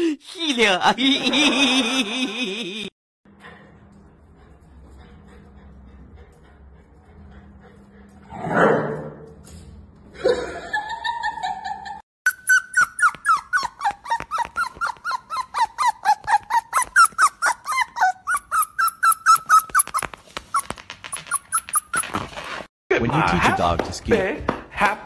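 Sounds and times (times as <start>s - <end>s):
puppy whimpering: 12.3s - 22.3s.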